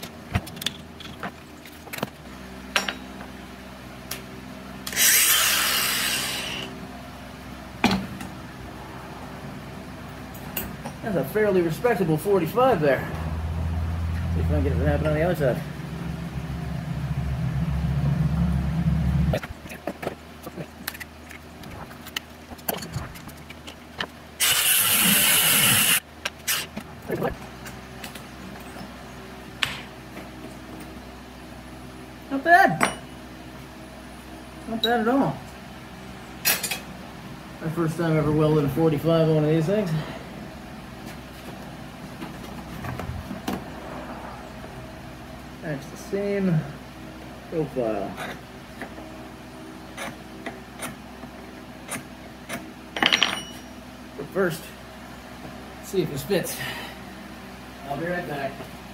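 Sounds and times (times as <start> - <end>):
tools and metal clinking: 2.7 - 3.1, 10.3 - 11.0, 36.4 - 36.9, 51.9 - 53.8
grinder cutting steel: 4.8 - 6.8, 24.4 - 26.7
angle grinder motor hum: 4.8 - 7.0, 13.1 - 19.8, 20.4 - 27.4.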